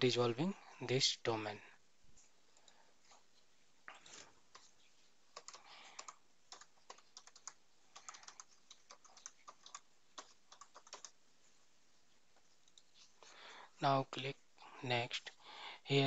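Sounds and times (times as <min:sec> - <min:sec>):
keyboard typing clicks: 0:05.4 - 0:11.2.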